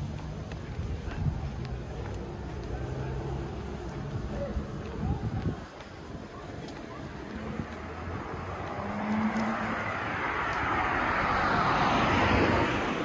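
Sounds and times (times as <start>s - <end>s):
car passing by: 7.3s - 13.0s.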